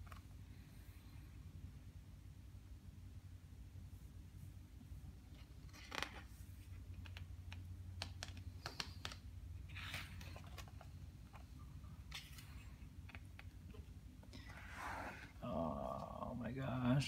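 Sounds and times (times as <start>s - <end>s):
low steady hum: 0.0s - 17.0s
book pages turning: 5.3s - 15.4s
fingers tapping on paper: 7.5s - 9.2s.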